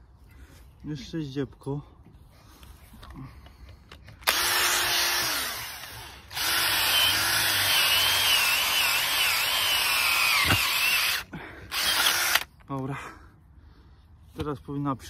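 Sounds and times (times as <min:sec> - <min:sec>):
power drill whining: 0:04.2 - 0:12.5.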